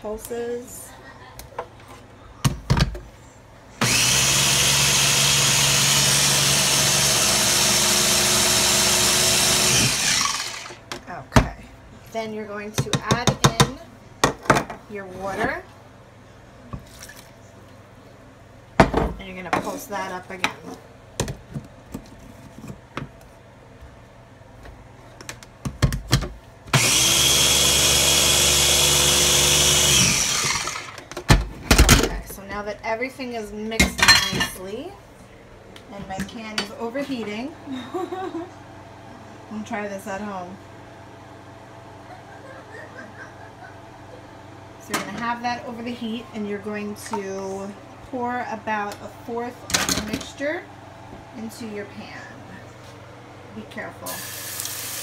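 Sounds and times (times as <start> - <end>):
food processor motor running: 3.8 - 10.8, 26.7 - 31.0.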